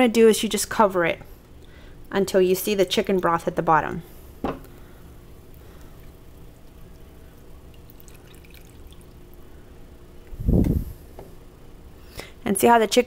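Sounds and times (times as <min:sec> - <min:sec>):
liquid trickling into pan: 0:06.0 - 0:09.4.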